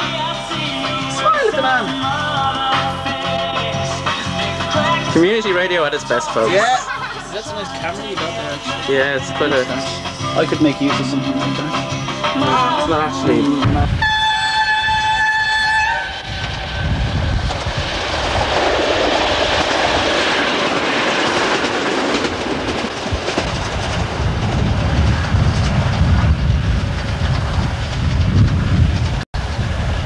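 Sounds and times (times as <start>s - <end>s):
train horn: 11.0s - 17.0s
train wheels clattering on track: 17.4s - 29.8s.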